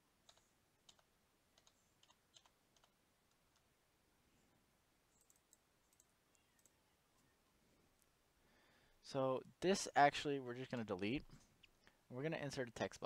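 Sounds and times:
computer mouse clicks: 0.2 - 3.7, 5.2 - 6.8.

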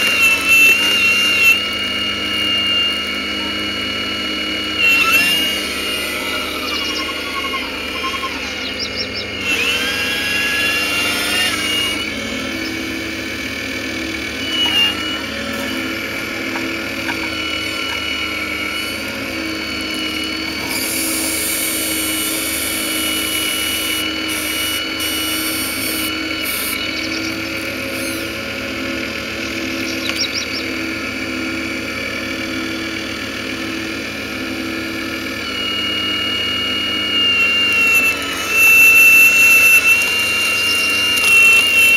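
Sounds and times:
model excavator electric whine: 0.0 - 41.9.

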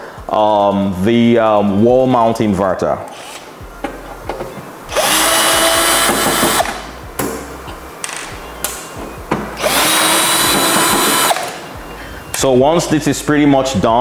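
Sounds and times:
cordless drill whining: 3.1 - 3.5, 4.9 - 6.8, 9.2 - 11.6.

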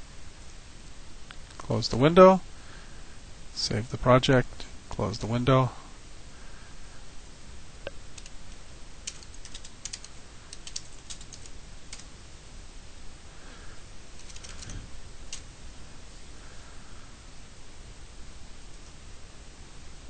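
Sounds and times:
faint steady hiss: 0.0 - 20.0
keyboard typing: 8.2 - 8.4, 9.0 - 12.1, 14.2 - 15.4.

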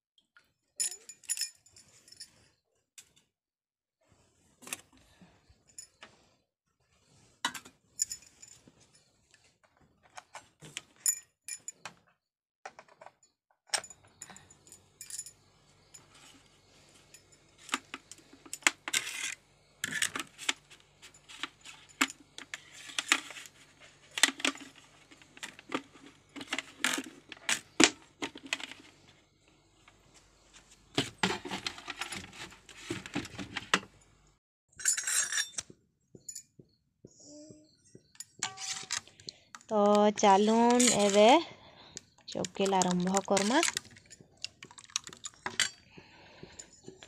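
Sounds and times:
metal utensils and pots clinking: 34.8 - 35.6, 38.2 - 39.2, 39.8 - 41.4, 42.3 - 47.0.

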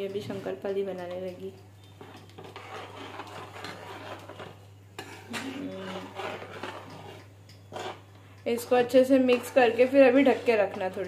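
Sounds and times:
spoon stirring in a bowl: 0.0 - 11.0.

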